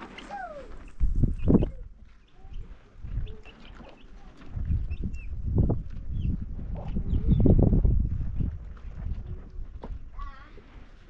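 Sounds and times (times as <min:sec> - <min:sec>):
small birds chirping: 0:00.2 - 0:07.7.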